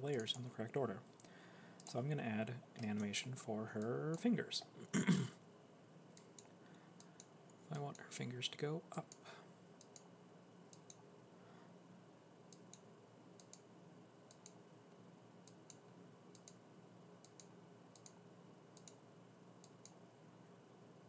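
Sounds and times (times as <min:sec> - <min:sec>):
low room hum: 0:00.0 - 0:21.0
computer mouse clicks: 0:09.8 - 0:10.1, 0:10.7 - 0:11.0, 0:12.5 - 0:13.7, 0:14.3 - 0:14.6, 0:15.4 - 0:16.6, 0:17.2 - 0:18.2, 0:18.8 - 0:19.0, 0:19.6 - 0:20.0.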